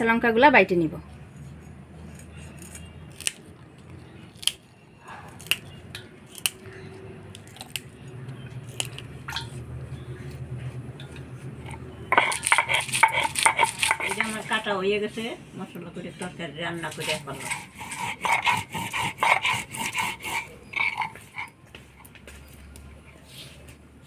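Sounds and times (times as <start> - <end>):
woman's voice: 0.0 - 1.1
chillies snapping: 2.1 - 4.7, 5.3 - 9.7
low steady hum: 3.6 - 16.8.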